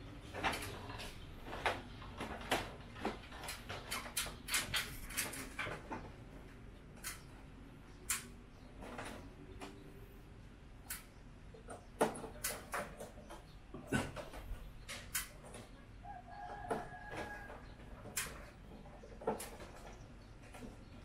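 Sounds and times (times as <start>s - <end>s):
plastic clicks and knocks: 10.9s - 15.7s, 16.5s - 20.9s.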